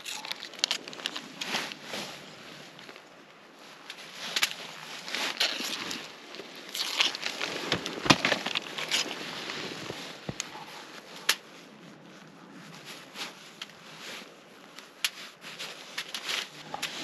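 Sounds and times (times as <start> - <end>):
aluminum foil crinkling: 0.0 - 3.0, 3.6 - 11.2, 14.8 - 17.0.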